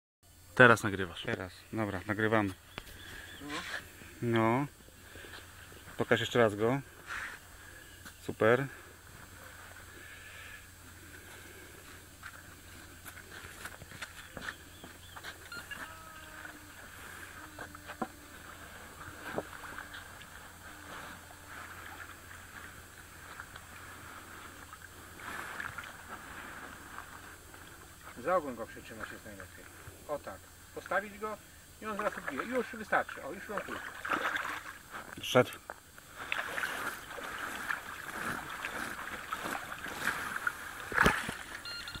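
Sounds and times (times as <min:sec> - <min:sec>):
water noise: 0:01.9 - 0:42.0
shallow water sloshing and splashing: 0:18.4 - 0:27.7, 0:31.9 - 0:35.1, 0:36.1 - 0:41.9.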